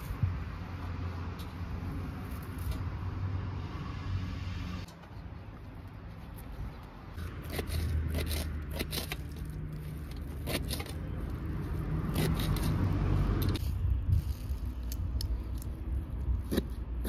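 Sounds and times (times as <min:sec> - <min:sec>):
steady low rumble: 0:09.2 - 0:17.0.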